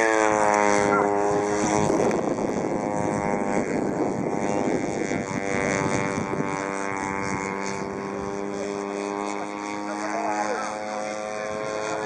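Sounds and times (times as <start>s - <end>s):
model plane engine and propeller: 0.0s - 12.0s.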